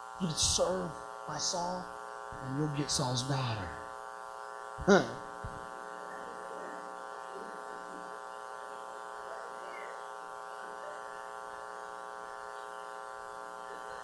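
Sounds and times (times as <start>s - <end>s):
mains hum: 0.0s - 14.0s.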